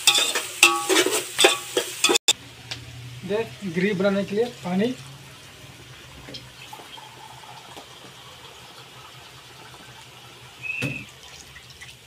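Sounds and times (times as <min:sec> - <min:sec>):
water hissing in hot wok: 0:00.0 - 0:12.0.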